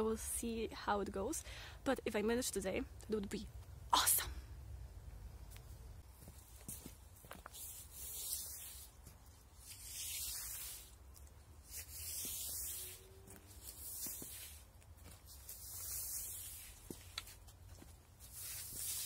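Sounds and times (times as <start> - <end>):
broom sweeping leaves on paving: 6.2 - 19.0.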